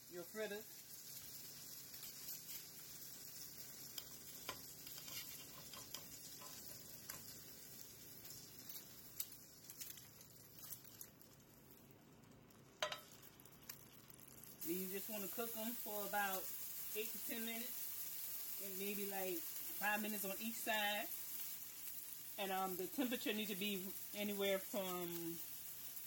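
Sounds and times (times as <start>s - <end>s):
oil sizzling in frying pan: 0.0s - 26.0s
small pops and crackles: 0.7s - 14.8s, 21.0s - 22.4s.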